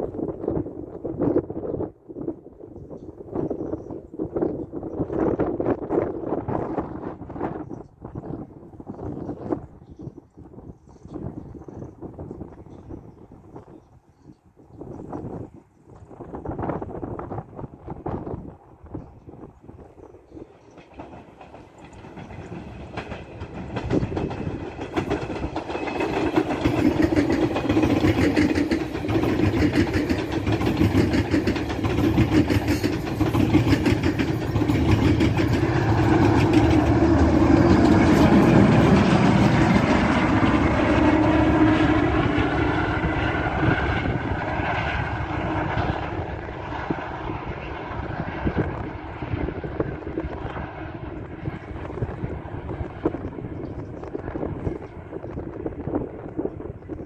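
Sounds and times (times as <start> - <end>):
train rumbling past: 15.0 - 57.0
wheels clattering on rails: 20.4 - 42.0.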